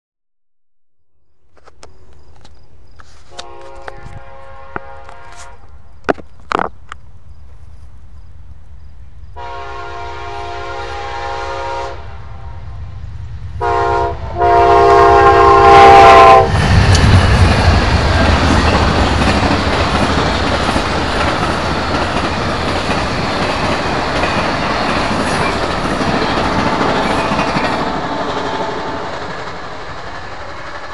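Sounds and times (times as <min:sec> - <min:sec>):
train horn blasts: 0:03.2 - 0:05.7, 0:09.4 - 0:12.8, 0:13.6 - 0:16.6, 0:27.8 - 0:29.1
train wheels rumbling and clattering: 0:12.8 - 0:30.9.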